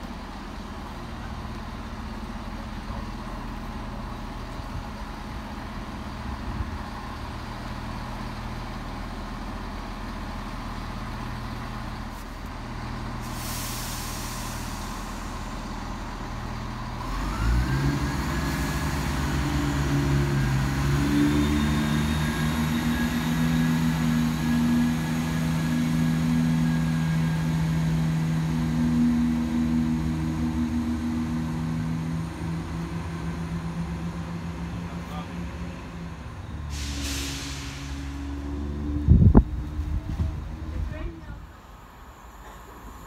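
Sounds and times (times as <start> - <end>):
diesel engines revving with whine: 0.0 - 43.0
diesel train engine idling: 0.0 - 43.0
short hiss of air: 13.2 - 15.4, 36.6 - 38.4.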